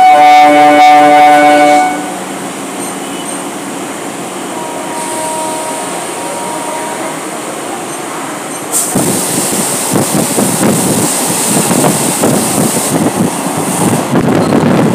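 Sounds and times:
train horn blast: 0.0s - 2.2s, 4.5s - 7.2s
train rumbling past: 0.0s - 14.9s.

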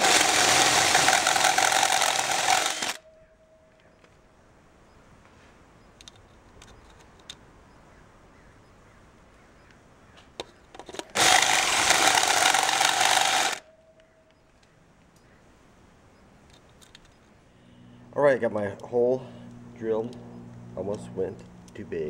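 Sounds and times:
power drill cutting metal: 0.0s - 3.0s, 11.2s - 13.6s.

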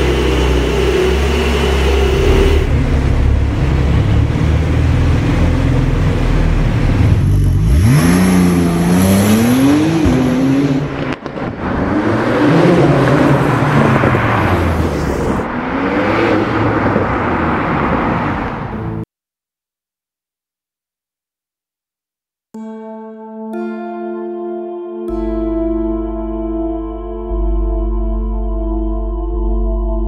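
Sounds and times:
car driving by: 0.0s - 19.0s
car engine revving: 0.0s - 19.0s.

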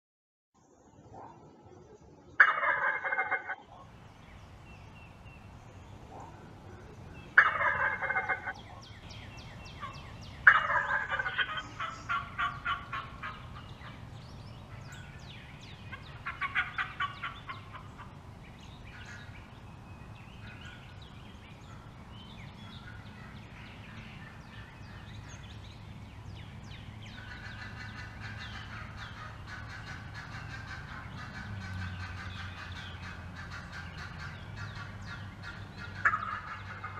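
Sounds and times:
turkey gobbling: 2.4s - 3.9s, 6.1s - 9.1s, 9.7s - 14.1s, 15.6s - 18.2s, 27.1s - 36.9s.

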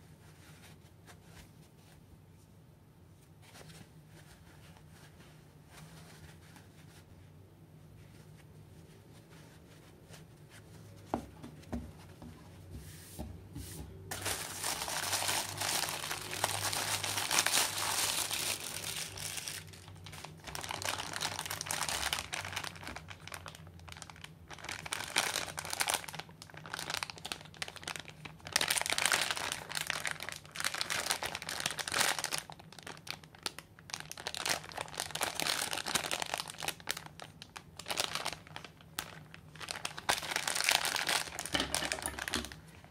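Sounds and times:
plastic bag crinkling: 14.1s - 42.9s.

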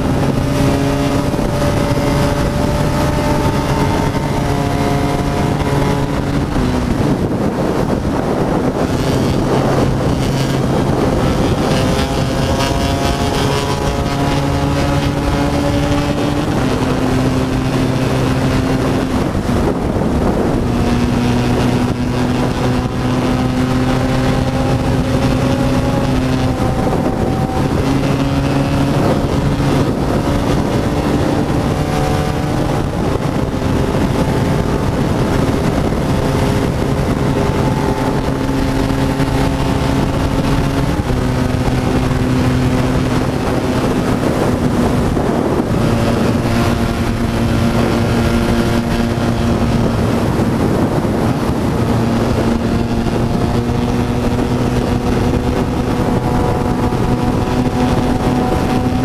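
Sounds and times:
motorcycle engine cruising: 0.0s - 59.0s
wind rushing: 0.0s - 59.0s.

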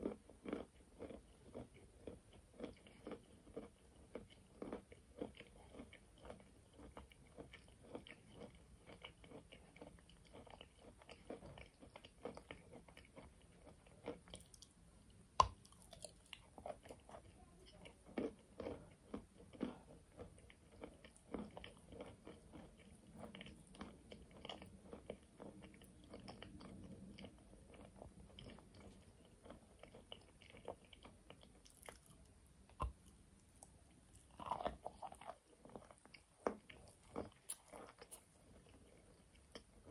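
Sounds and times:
chewing chalk crunches: 0.0s - 14.7s, 34.1s - 39.9s.

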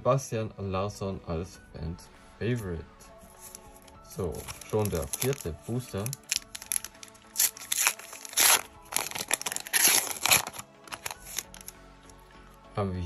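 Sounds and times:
plastic wrapper tearing and crinkling: 3.4s - 11.8s.

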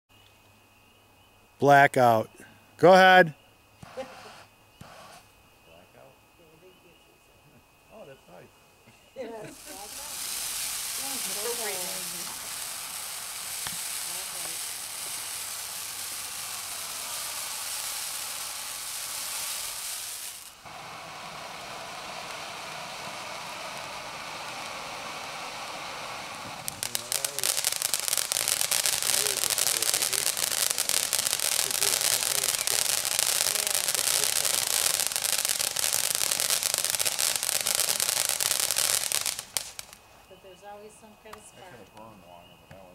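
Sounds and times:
firework fountain hissing: 2.8s - 5.4s, 9.2s - 40.0s
dense crackling: 9.5s - 40.1s.

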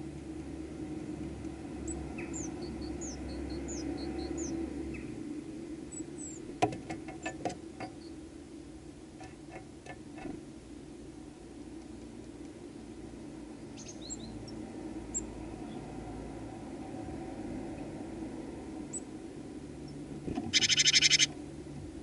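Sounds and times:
steady low hum: 0.0s - 22.0s
songbird calling: 1.9s - 5.2s, 13.7s - 15.8s, 19.9s - 21.3s.

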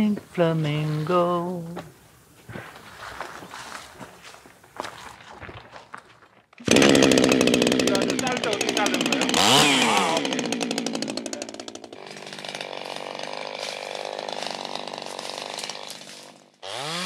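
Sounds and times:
chainsaw revving: 6.6s - 17.0s.

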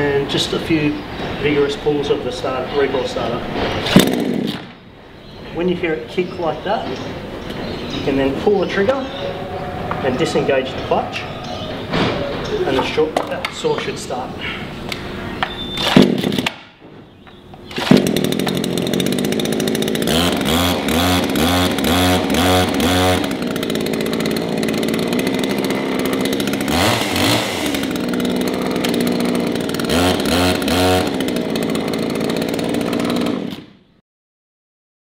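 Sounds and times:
chainsaw revving: 2.4s - 4.8s, 15.7s - 16.7s, 17.5s - 33.9s
recoil starter pulls: 3.1s - 4.8s, 11.8s - 33.8s.

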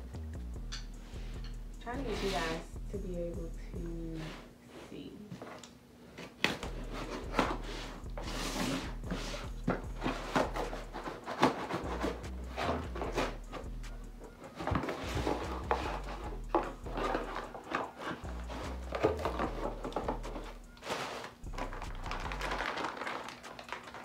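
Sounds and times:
box cutter scraping cardboard: 6.6s - 13.7s.

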